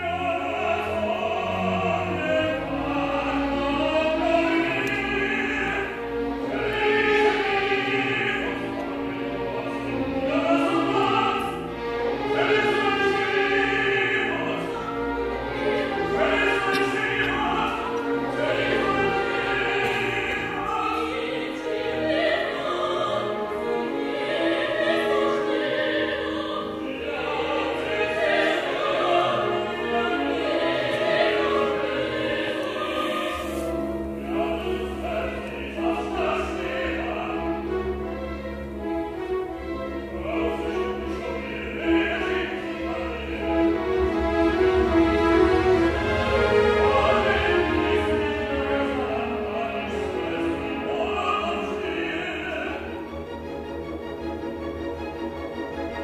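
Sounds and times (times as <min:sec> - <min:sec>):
opera singing voices: 0:00.0 - 0:53.3
orchestra playing: 0:00.0 - 0:56.0.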